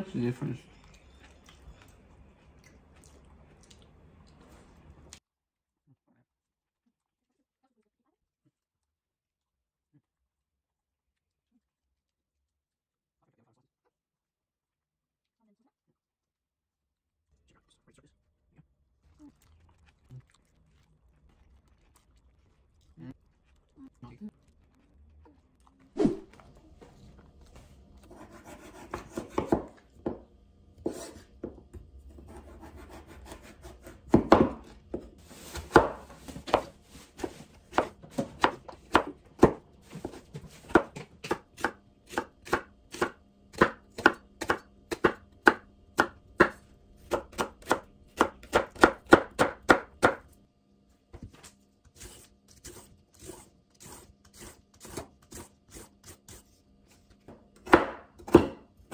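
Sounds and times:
knife chopping on cutting board: 28.1s - 30.2s, 32.2s - 50.3s, 57.6s - 58.9s
vegetable peeler scraping: 52.0s - 56.5s.

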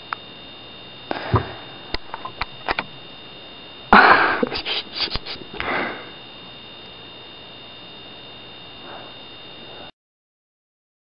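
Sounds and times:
breathing through the nose: 4.4s - 6.1s.

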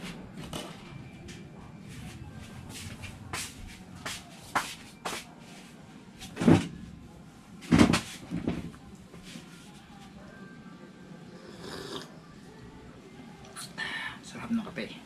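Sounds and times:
thumps of sitting on plastic chair: 7.6s - 8.7s.

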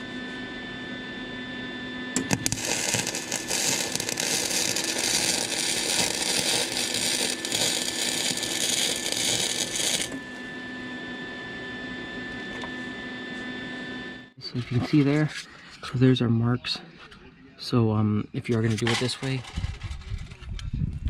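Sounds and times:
welder arc crackling: 2.2s - 10.2s.

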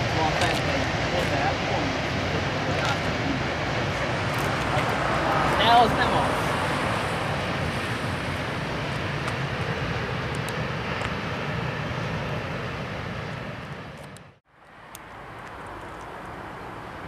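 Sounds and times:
distant freight train rolling: 0.0s - 14.0s.

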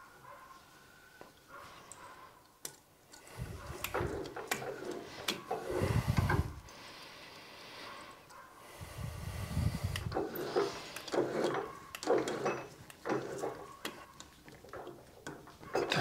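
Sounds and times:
metal parts clicking and knocking: 1.9s - 6.5s, 10.0s - 16.0s.

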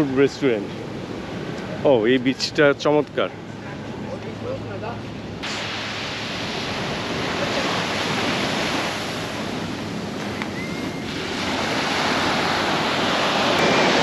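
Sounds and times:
sea waves breaking on beach: 5.4s - 14.0s.

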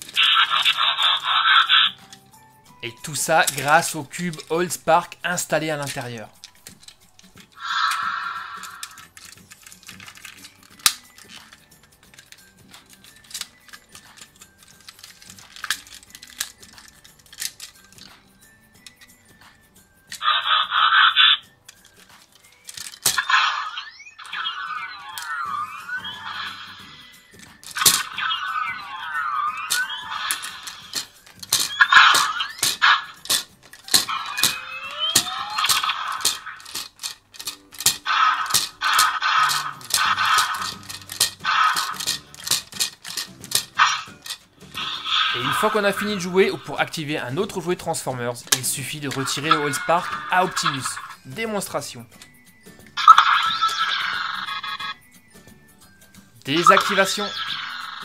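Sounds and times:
plastic toy parts snapping: 0.0s - 26.7s, 27.3s - 51.3s
toy electronic swoops: 0.2s - 2.0s, 7.6s - 9.0s, 20.2s - 21.5s, 23.1s - 36.8s, 38.0s - 42.3s, 43.6s - 46.7s, 49.1s - 51.3s, 53.0s - 55.0s, 56.6s - 58.0s
sharp plastic clicks: 3.0s - 23.5s, 27.3s - 28.8s, 29.5s - 47.6s.

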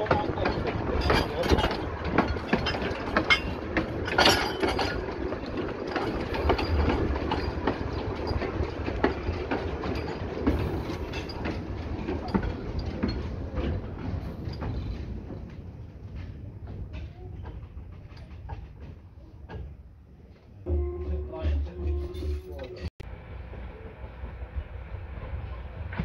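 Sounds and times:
wheels clicking on rails: 0.0s - 20.6s
steam train rumbling on track: 0.0s - 26.0s.

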